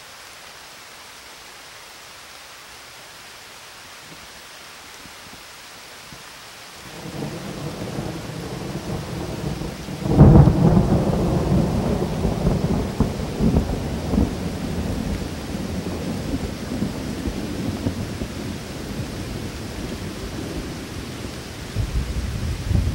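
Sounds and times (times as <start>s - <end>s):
steady rain: 0.0s - 22.9s
thunder rumbling and cracking: 6.9s - 19.1s, 21.7s - 22.9s.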